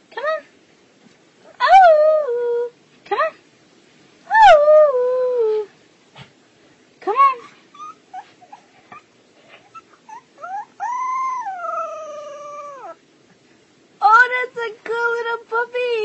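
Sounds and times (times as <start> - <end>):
puppy whimpering: 7.7 - 13.0
puppy howling: 9.7 - 13.0.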